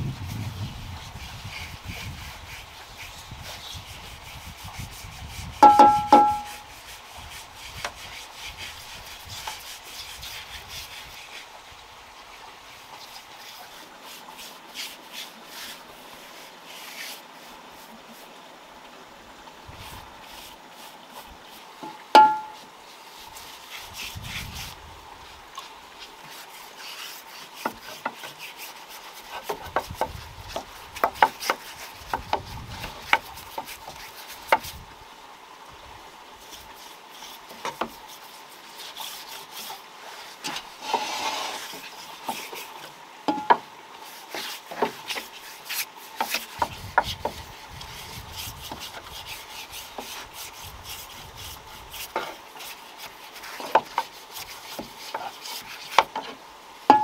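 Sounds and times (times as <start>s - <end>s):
paintbrush strokes on wood: 0.3s - 11.6s, 12.7s - 18.5s, 19.8s - 34.9s, 36.4s - 57.0s
brush scraping in paint tin: 0.4s - 11.4s, 26.2s - 34.7s, 37.2s - 42.8s, 44.0s - 56.3s.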